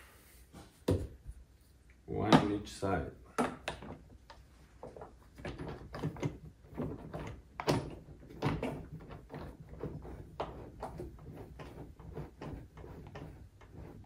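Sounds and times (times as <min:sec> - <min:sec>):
plastic parts clicking and knocking: 0:03.4 - 0:11.1.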